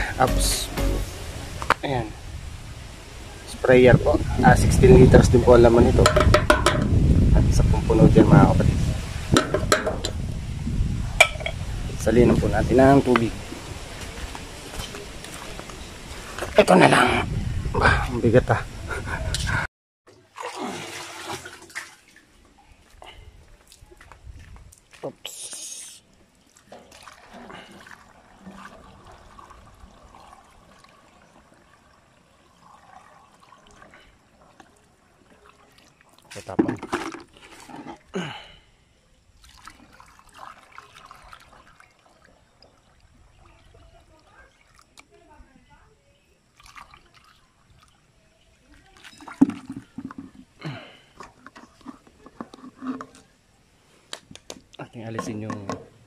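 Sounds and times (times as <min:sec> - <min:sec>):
knocks and clatter: 0:06.0 - 0:07.0
water trickling into a tank: 0:26.0 - 0:36.5, 0:39.4 - 0:51.0.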